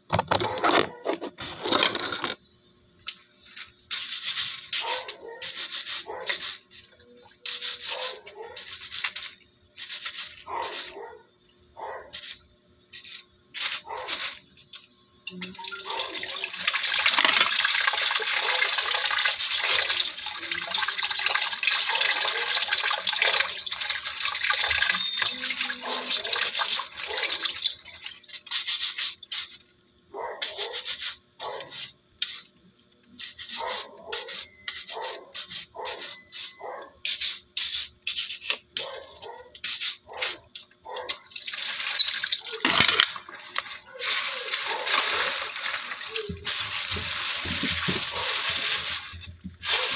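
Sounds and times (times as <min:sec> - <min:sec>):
brush scrubbing crab shell: 0:03.4 - 0:10.9, 0:41.4 - 0:49.9
tap water running: 0:14.6 - 0:29.7, 0:41.0 - 0:49.9.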